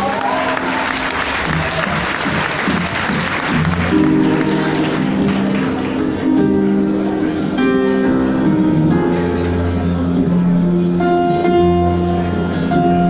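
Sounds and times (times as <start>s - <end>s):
audience applause: 0.0s - 6.3s.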